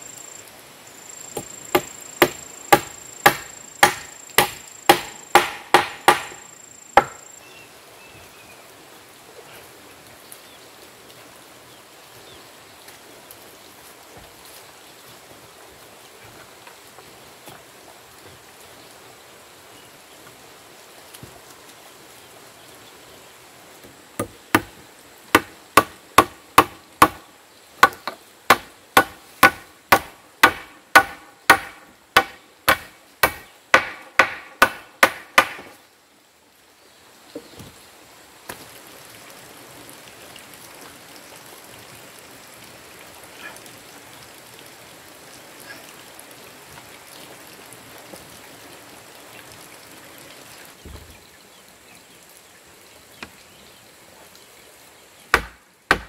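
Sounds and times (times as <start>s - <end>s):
faint outdoor background: 0.0s - 56.0s
hammering on timber: 1.3s - 7.2s, 24.2s - 27.2s, 27.8s - 35.8s, 55.3s - 56.0s.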